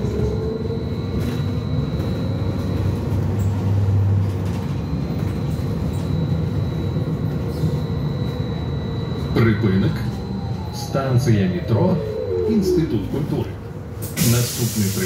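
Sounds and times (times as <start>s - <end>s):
trolleybus running rumble: 0.0s - 15.0s
thin high whine: 6.0s - 13.6s.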